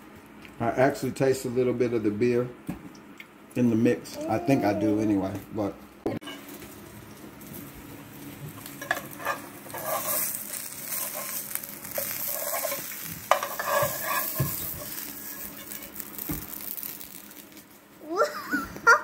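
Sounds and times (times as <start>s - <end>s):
pancake sizzling in frying pan: 6.3s - 18.2s
spatula scraping pan: 8.8s - 16.0s.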